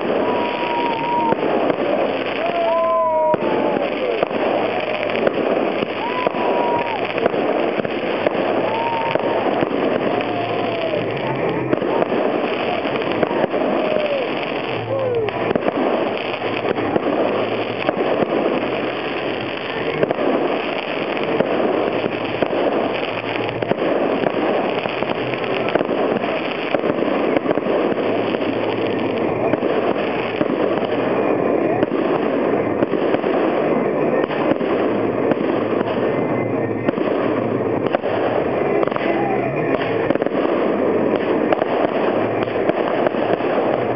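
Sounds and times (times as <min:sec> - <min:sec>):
fireworks launching and bursting: 0:00.0 - 0:43.9.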